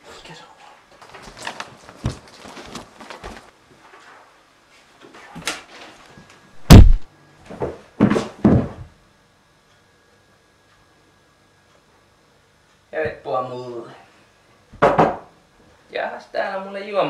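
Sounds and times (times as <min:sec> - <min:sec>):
door slamming: 0:06.6 - 0:07.0
heavy thumps: 0:06.6 - 0:07.1.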